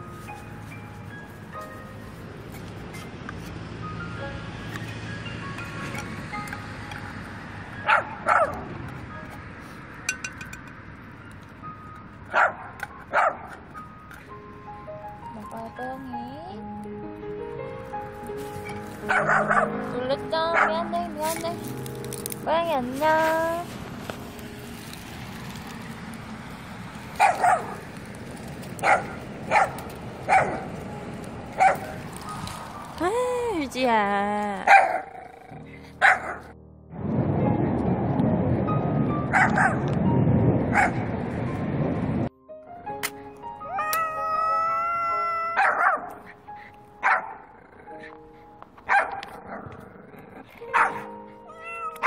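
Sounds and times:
dog barking: 7.9 - 8.7, 12.3 - 13.6, 19.0 - 19.8, 20.5 - 20.8, 27.2 - 27.8, 28.8 - 30.7, 31.6 - 32.4, 34.7 - 35.4, 36.0 - 36.5, 39.3 - 39.9, 40.7 - 41.1, 45.6 - 46.2, 47.0 - 47.4, 48.9 - 49.7, 50.7 - 51.1.

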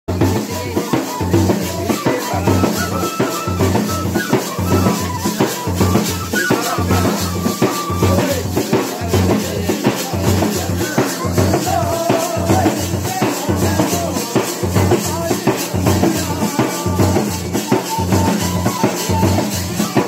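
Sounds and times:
drum beat: 0.1 - 20.0
flute melody: 0.4 - 9.1, 17.2 - 20.0.

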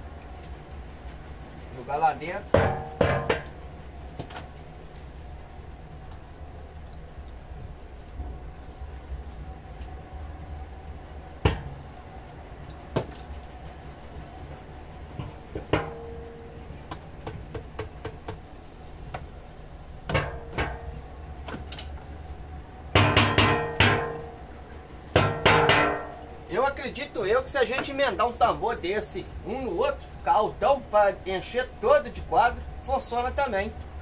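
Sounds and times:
wooden frames knocking on metal drum: 2.5 - 3.6, 11.4 - 11.8, 15.1 - 16.5, 20.0 - 21.1, 23.0 - 24.4, 25.2 - 26.3.

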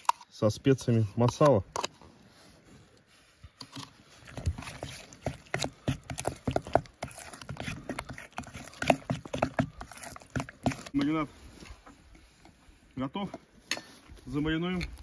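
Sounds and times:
spoon scraping metal bowl: 3.6 - 11.0.

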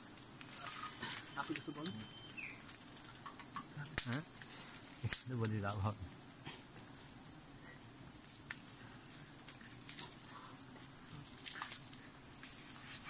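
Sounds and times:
insects chirring: 0.0 - 13.0
soft clicks and snaps: 2.7 - 4.2.

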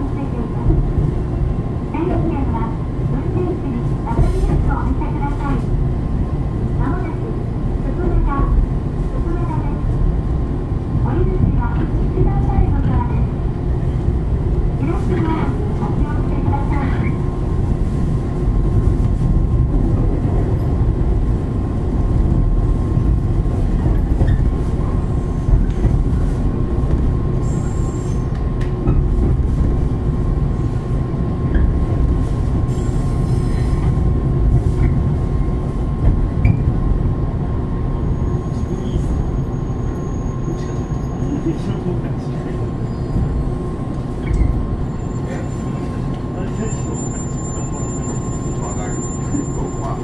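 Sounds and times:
train wheels rumbling on rails: 0.0 - 50.0
high wheel squeals: 38.1 - 41.4, 42.8 - 43.5, 44.3 - 50.0.

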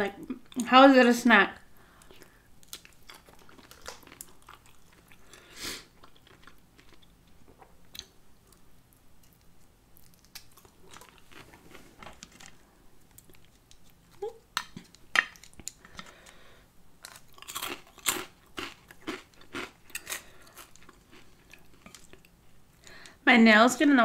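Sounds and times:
person chewing food: 1.8 - 23.1
crunchy bites: 17.0 - 22.2.

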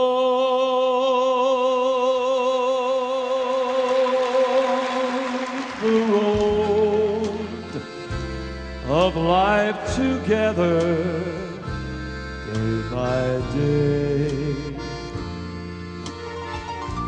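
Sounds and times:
person singing with vibrato: 0.0 - 15.5
bass: 5.8 - 17.0.

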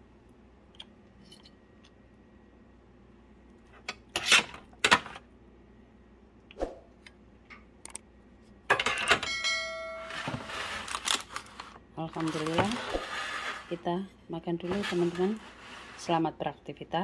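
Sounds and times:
steady ringing tone: 9.2 - 10.3.

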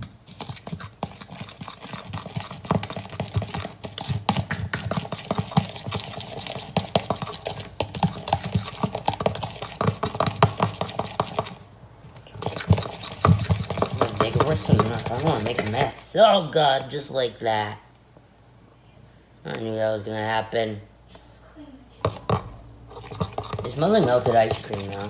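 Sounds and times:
utensil beating in plastic bowl: 0.0 - 16.0, 22.0 - 25.0.

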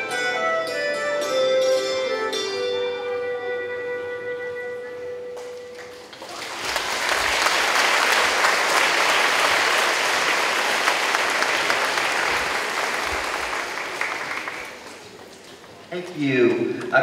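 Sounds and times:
audience clapping: 5.4 - 17.0.

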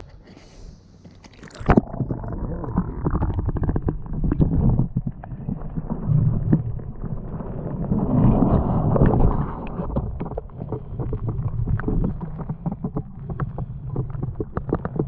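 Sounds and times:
underwater bubbles gurgling: 1.2 - 15.0
water splash: 1.3 - 10.2.

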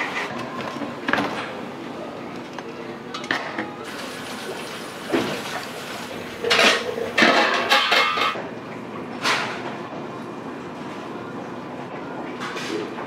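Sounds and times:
steady kitchen hum: 0.0 - 13.0
dishes clattering in a steel sink: 3.1 - 8.4.

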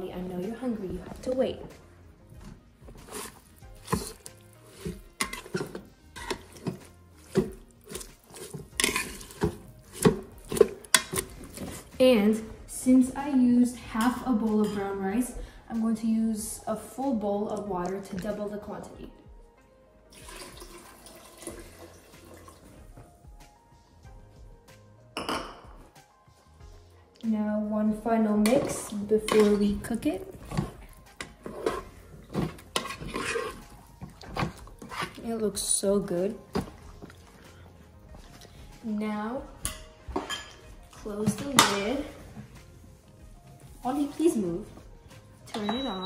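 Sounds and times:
soft background music: 0.0 - 46.0
paddle scraping and squelching rice: 3.0 - 11.9, 30.4 - 35.2
water pouring and splashing: 3.0 - 12.0, 20.1 - 23.0.

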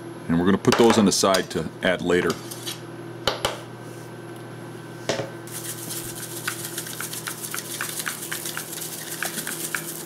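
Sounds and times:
salt grinder crackling: 5.5 - 10.0.

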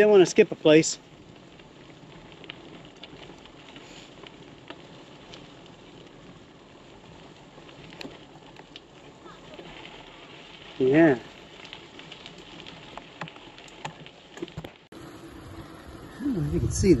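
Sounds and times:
bicycle tyres on wet gravel: 0.0 - 17.0
small ticks: 1.0 - 14.8.

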